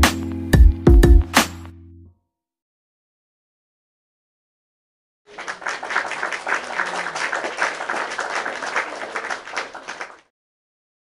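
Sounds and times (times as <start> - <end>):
crowd applause: 5.3 - 10.3.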